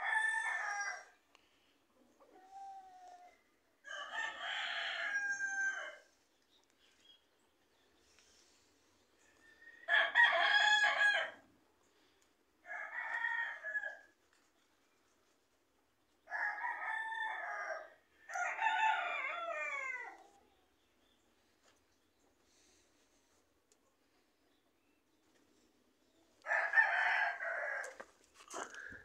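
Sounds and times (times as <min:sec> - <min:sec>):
rooster crowing: 0:00.0 - 0:01.1, 0:03.8 - 0:06.1, 0:09.3 - 0:11.4, 0:12.7 - 0:14.1, 0:16.3 - 0:20.2, 0:26.4 - 0:28.9.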